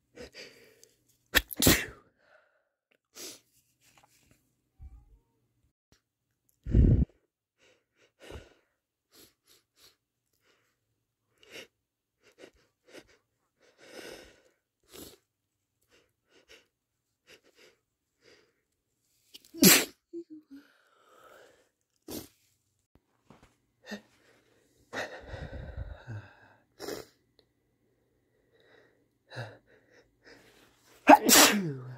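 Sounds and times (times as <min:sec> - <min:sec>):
person sneezing: 0:01.4 - 0:02.0, 0:19.4 - 0:20.0, 0:31.0 - 0:31.9.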